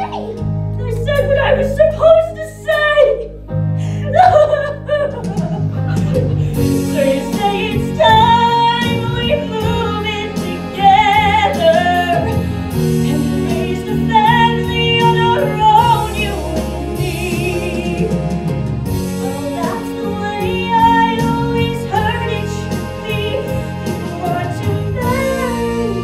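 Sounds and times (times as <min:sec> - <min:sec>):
instrumental accompaniment: 0:00.0 - 0:26.0
woman singing with vibrato: 0:06.7 - 0:18.4, 0:19.2 - 0:26.0.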